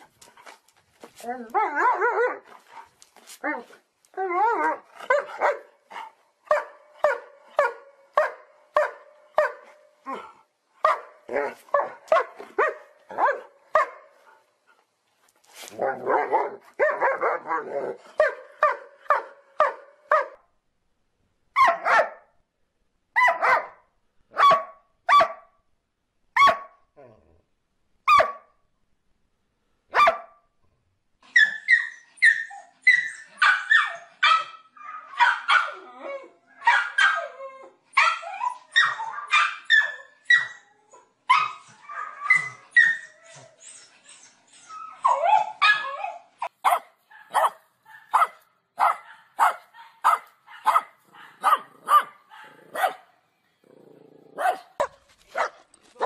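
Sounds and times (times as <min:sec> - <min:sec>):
dog barking: 0:05.1 - 0:05.7, 0:06.5 - 0:09.6, 0:10.8 - 0:14.1, 0:15.8 - 0:20.4, 0:21.6 - 0:22.3, 0:23.2 - 0:23.8, 0:24.4 - 0:25.5, 0:26.4 - 0:26.8, 0:28.1 - 0:28.5, 0:29.9 - 0:30.4, 0:36.6 - 0:37.2, 0:46.6 - 0:53.1, 0:54.4 - 0:55.6
small dog barking rapidly: 0:24.4 - 0:25.4, 0:46.6 - 0:53.0, 0:54.4 - 0:55.6.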